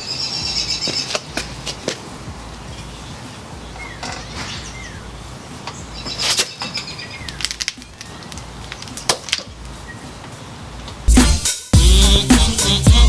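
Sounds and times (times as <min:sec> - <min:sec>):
steady low hiss: 0:00.0 - 0:13.0.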